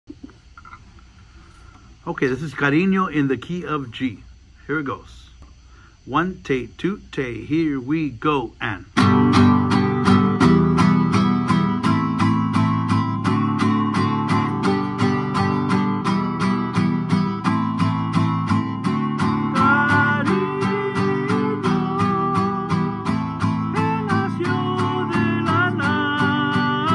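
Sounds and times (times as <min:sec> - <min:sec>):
classical guitar strumming: 0:09.0 - 0:26.9.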